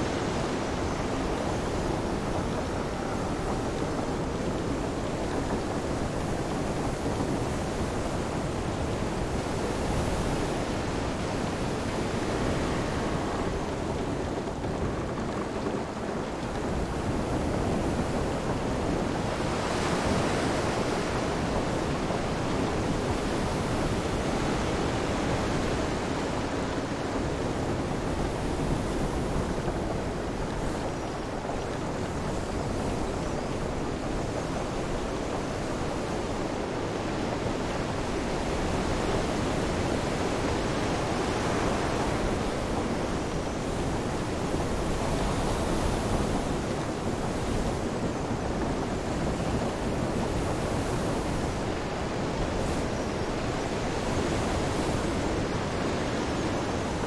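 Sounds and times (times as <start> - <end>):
rain: 0.0 - 57.0
wind: 0.0 - 57.0.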